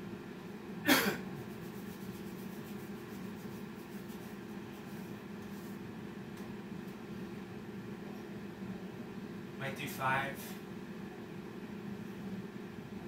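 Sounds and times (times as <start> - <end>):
low background hum: 0.0 - 13.0
man coughing: 0.8 - 1.3.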